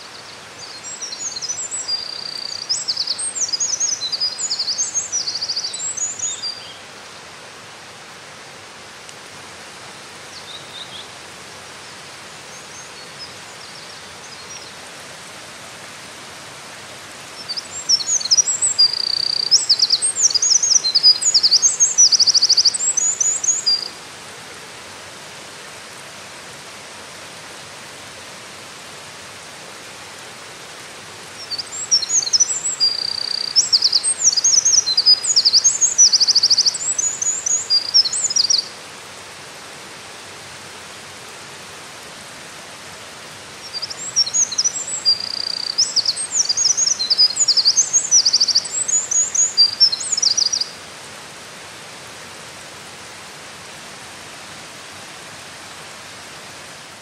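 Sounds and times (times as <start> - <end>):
wren singing: 0.2 - 6.8, 17.4 - 23.9, 31.4 - 38.7, 43.6 - 50.7.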